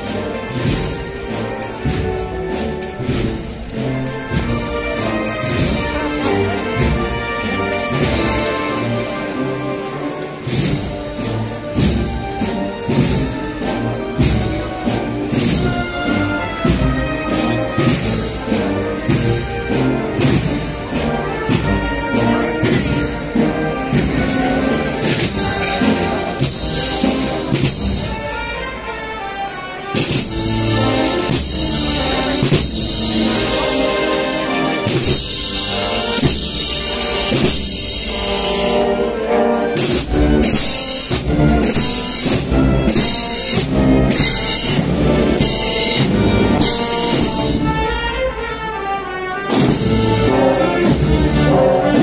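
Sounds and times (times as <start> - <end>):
drum beats: 0.0 - 28.9, 29.9 - 48.6, 49.4 - 52.0
brass band playing slow march: 0.0 - 52.0
cymbal strokes: 30.0 - 39.1, 39.8 - 48.0
drum beat: 39.8 - 48.0.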